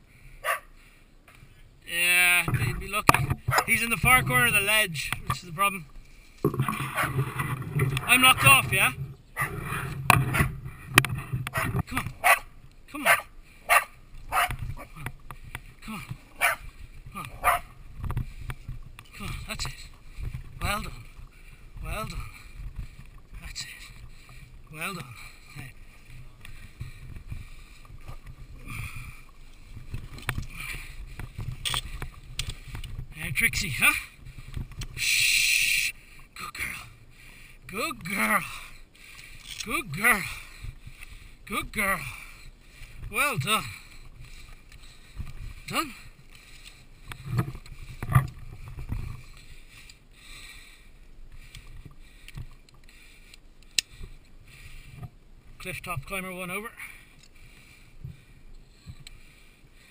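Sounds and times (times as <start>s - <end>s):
low rumbling wind: 0.0s - 35.1s, 36.0s - 56.1s
low rustling: 2.2s - 35.0s.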